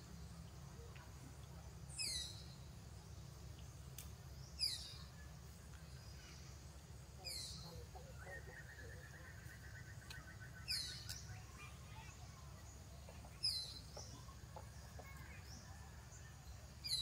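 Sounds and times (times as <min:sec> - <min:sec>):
bird calling: 0:07.2 - 0:15.8.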